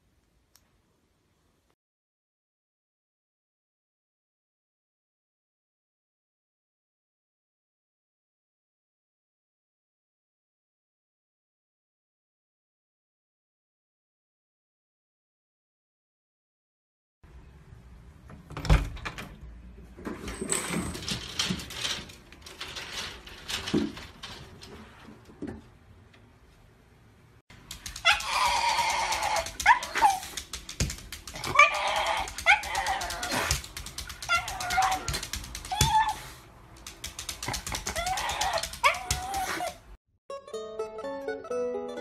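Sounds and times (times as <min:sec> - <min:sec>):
dog whining and yelping: 0:27.9 - 0:30.4, 0:31.3 - 0:36.4, 0:37.6 - 0:40.0.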